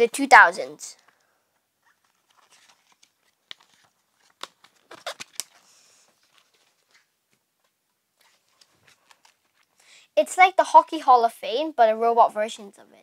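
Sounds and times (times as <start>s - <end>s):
paper pages rustling: 1.0s - 9.8s.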